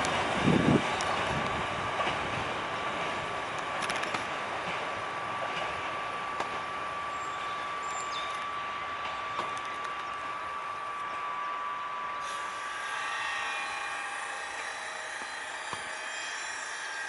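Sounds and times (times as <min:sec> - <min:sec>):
train rumble and hiss: 0:00.0 - 0:17.0
thin steady whine: 0:03.4 - 0:17.0.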